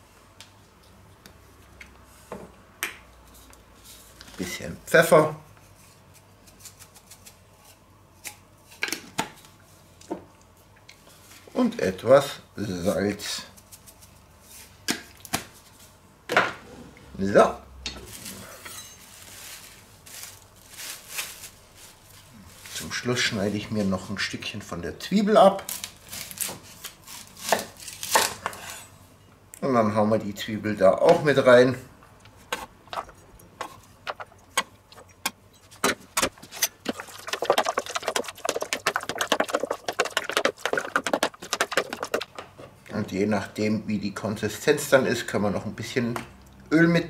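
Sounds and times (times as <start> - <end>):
plastic wrap rustling: 18.0 - 24.0, 25.6 - 28.5, 36.2 - 42.4
marinade stirred in plastic tub: 32.9 - 42.6
containers knocking on wooden board: 36.8 - 42.4.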